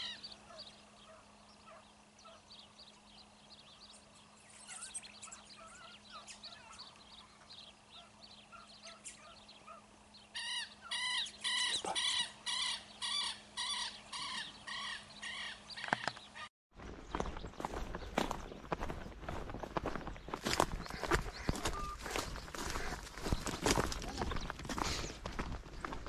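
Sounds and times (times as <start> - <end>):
faint chirping: 0.0 - 16.5
loud animal calls: 4.6 - 16.5, 20.5 - 25.0.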